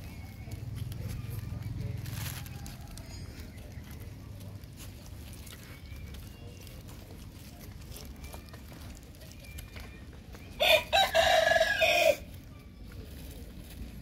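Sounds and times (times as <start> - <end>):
rooster crowing: 10.6 - 12.3.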